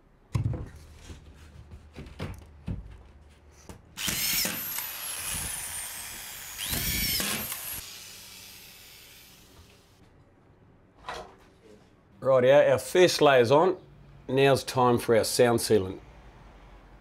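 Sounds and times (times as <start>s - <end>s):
screw gun motor whining: 4.0s - 9.9s.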